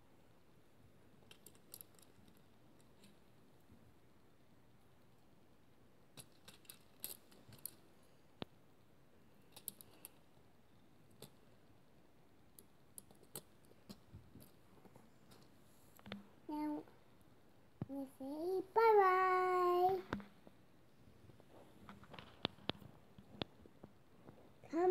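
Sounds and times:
plastic toy bricks clicking: 6.2s - 7.8s, 9.5s - 10.2s.

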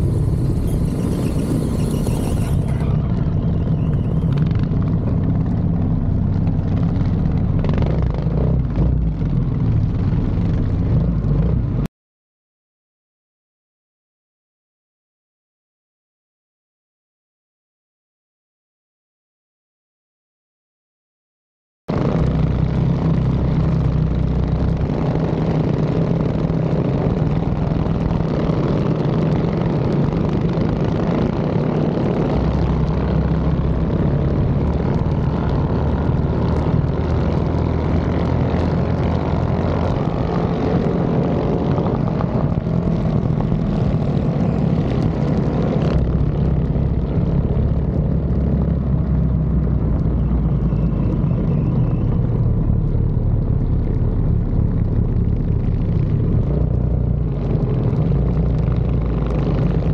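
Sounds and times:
mini bike engine running: 0.0s - 4.4s.

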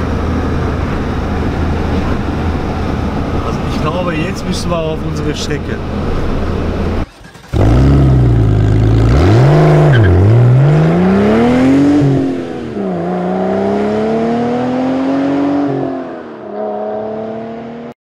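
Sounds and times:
car engine accelerating: 5.3s - 18.0s.

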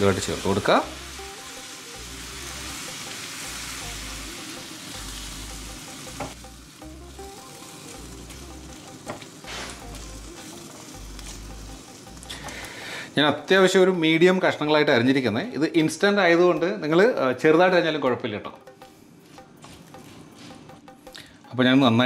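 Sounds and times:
food sizzling in hot oil: 0.0s - 13.7s.

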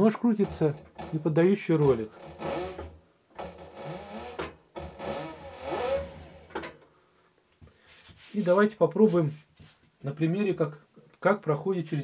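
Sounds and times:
machine motor whining: 0.4s - 6.7s.

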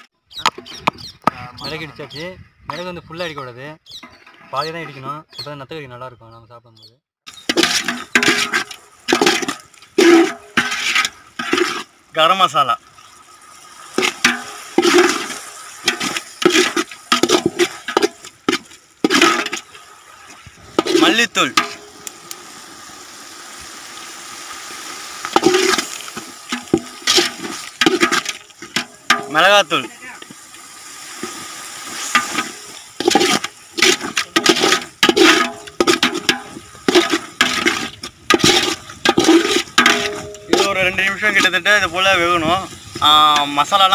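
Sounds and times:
ladle scraping a metal pot: 7.3s - 11.9s, 14.0s - 19.8s, 20.6s - 21.9s, 25.3s - 29.8s, 31.2s - 41.6s
faint frying hiss: 7.3s - 43.9s.

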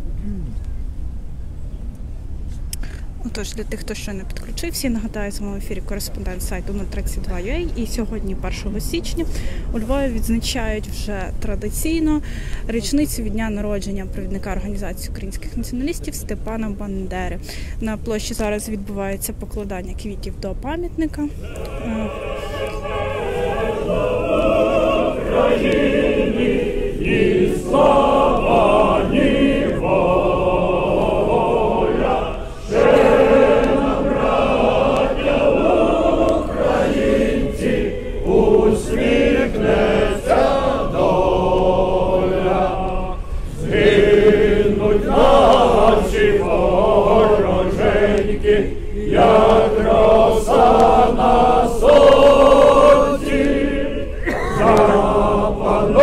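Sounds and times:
crowd singing in unison: 21.4s - 56.0s.

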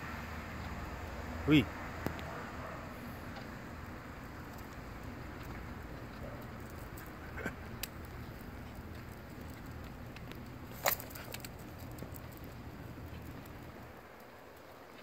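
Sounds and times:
low outdoor rumble: 0.0s - 15.0s
light clicks and taps: 4.4s - 14.3s.

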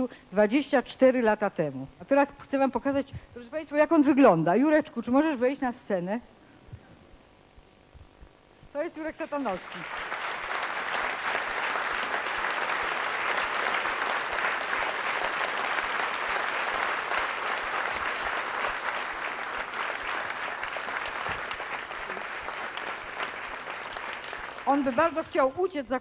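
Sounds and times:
audience applauding: 9.3s - 25.5s.

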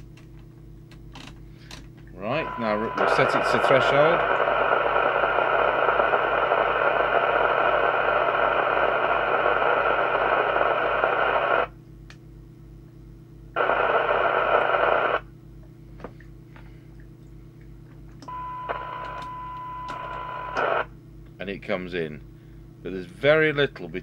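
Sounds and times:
steady test tone: 2.2s - 8.0s
radio squelch hiss: 2.2s - 11.7s, 13.6s - 15.2s, 20.4s - 20.9s.

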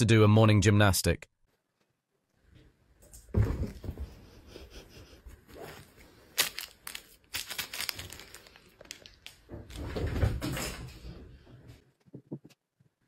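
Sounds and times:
rustling and crinkling handling noise: 5.4s - 10.0s.

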